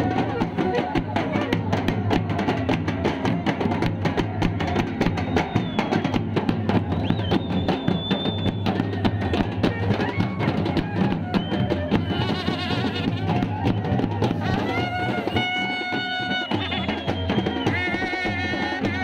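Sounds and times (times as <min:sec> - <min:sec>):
drums beaten fast: 0:00.0 - 0:19.0
long brass horn blowing: 0:12.1 - 0:13.5, 0:14.4 - 0:17.1.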